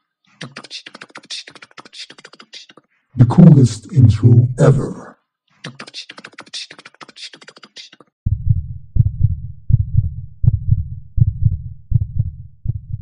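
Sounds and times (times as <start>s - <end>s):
heartbeat sound effect: 8.3s - 13.0s.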